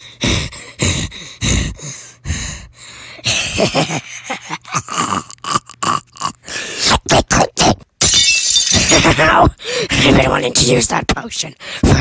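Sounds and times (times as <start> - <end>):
person gasping and groaning: 0.0 - 7.8, 9.1 - 10.2.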